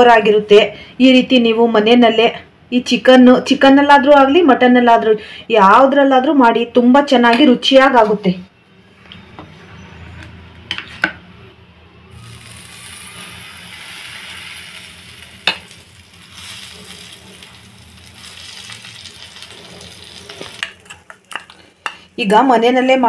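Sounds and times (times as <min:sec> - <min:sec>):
bread sizzling on a griddle: 0:12.2 - 0:20.7.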